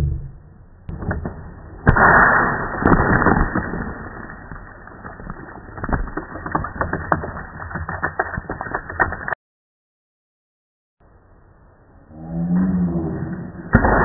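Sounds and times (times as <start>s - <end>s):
water rocket launching burst: 1.8s - 4.4s.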